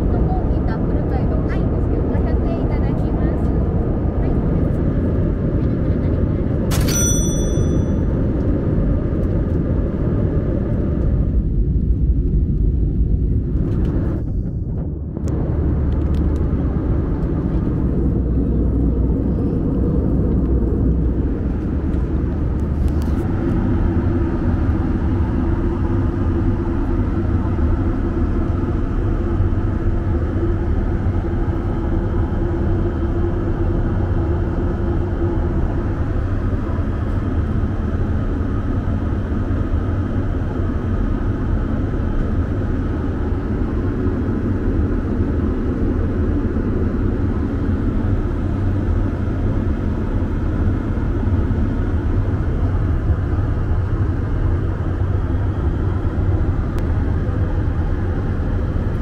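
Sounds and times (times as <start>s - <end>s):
higher hum: 0.0s - 8.7s
aircraft cabin rumble: 0.0s - 59.0s.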